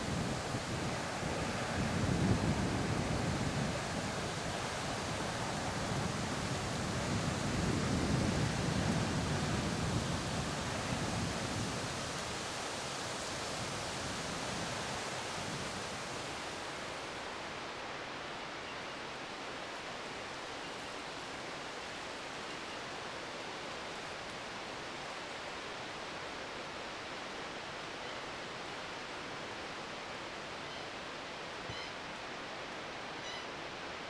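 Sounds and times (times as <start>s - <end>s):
waterfall rushing: 0.0s - 18.4s.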